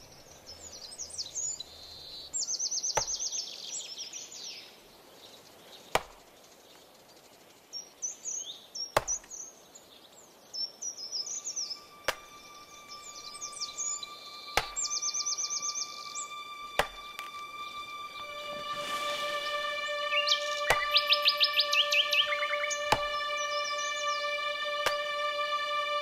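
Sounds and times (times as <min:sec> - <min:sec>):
birds chirping: 0:00.0 - 0:26.0
music drone: 0:11.3 - 0:26.0
sharp knocks: 0:12.1 - 0:12.3, 0:14.6 - 0:14.9, 0:16.8 - 0:17.4, 0:22.9 - 0:23.2.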